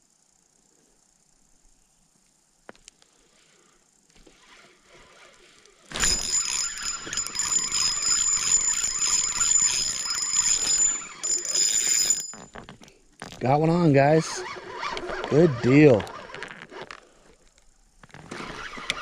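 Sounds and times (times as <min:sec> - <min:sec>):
fishing reel whirring: 0:04.1 - 0:12.6, 0:13.9 - 0:17.4, 0:18.2 - 0:19.0.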